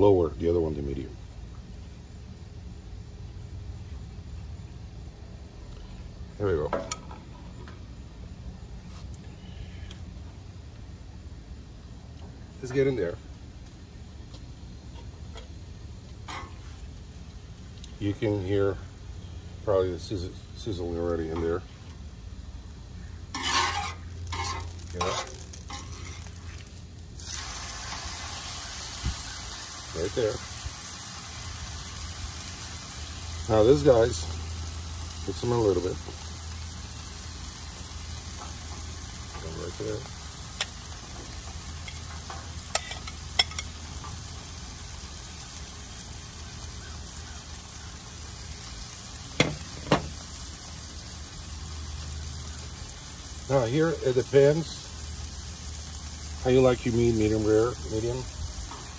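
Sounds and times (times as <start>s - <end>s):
meat sizzling on a griddle: 14.0s - 19.4s, 20.0s - 58.9s.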